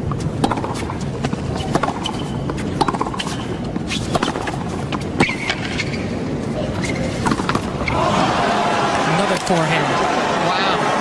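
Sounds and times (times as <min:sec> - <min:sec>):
tennis ball hit with rackets: 0:00.4 - 0:05.8, 0:07.2 - 0:07.7
sneakers squeaking on court: 0:00.4 - 0:08.0.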